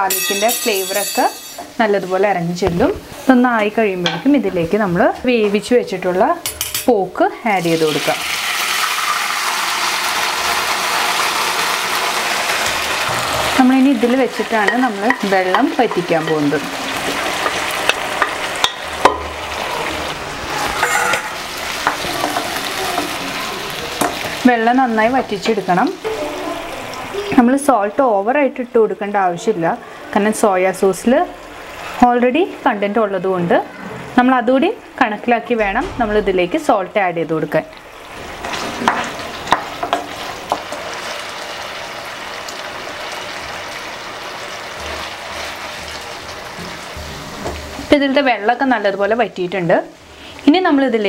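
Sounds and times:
meat sizzling in hot oil: 7.4 - 28.4, 37.7 - 51.0.

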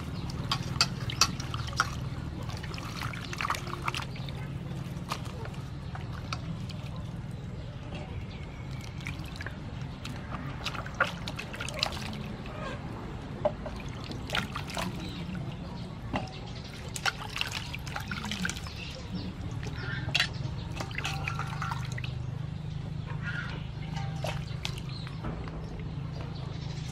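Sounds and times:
water splashing in metal bowl: 0.0 - 7.4, 8.4 - 12.7, 13.4 - 22.4, 23.6 - 25.9.

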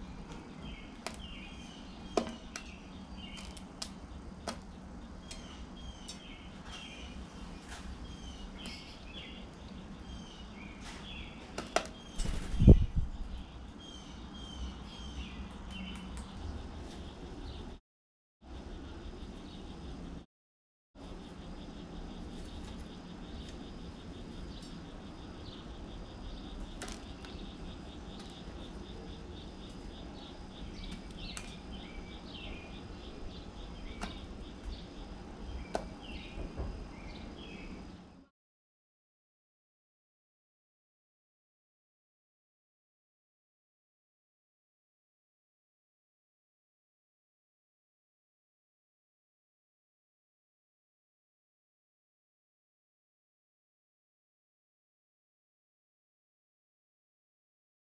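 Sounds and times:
small birds chirping: 0.0 - 17.8, 18.4 - 20.2, 21.0 - 38.3
bird wingbeats: 11.6 - 13.1.

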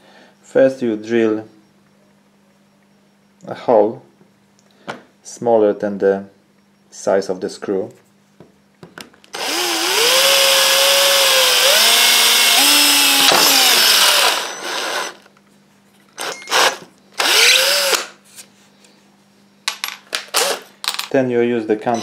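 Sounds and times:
cordless drill whining: 9.3 - 15.3, 16.2 - 18.2.

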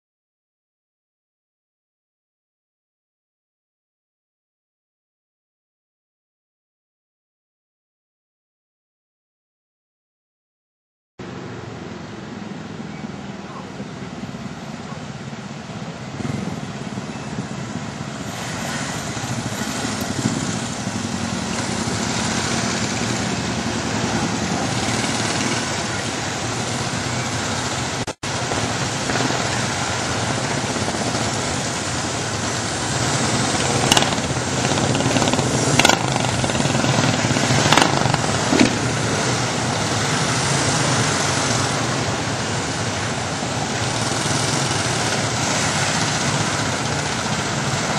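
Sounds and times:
motorcycles riding past: 11.2 - 47.9.

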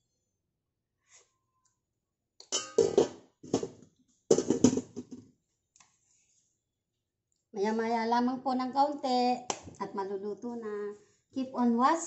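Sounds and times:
pan lid clanking on pan rim: 2.6 - 3.7.

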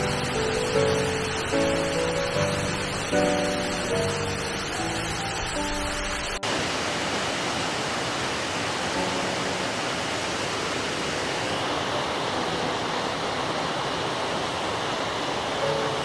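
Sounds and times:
waterfall pouring: 0.0 - 16.0.

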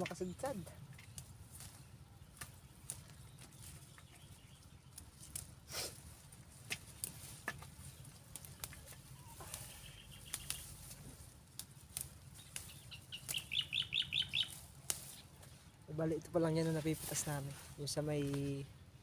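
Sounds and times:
bird chirping: 0.0 - 5.4, 7.8 - 11.0, 12.0 - 15.8
stems snapping: 0.0 - 15.6, 16.2 - 18.6
bushes rustling: 0.0 - 19.0.

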